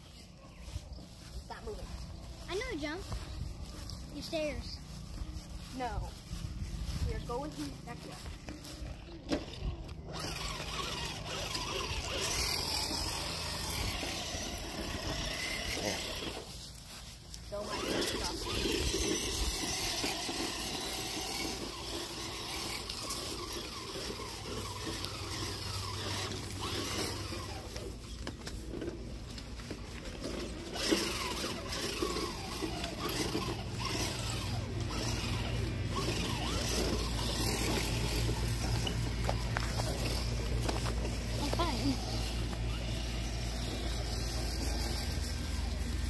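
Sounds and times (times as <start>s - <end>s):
steady low rumble: 0.0s - 10.2s.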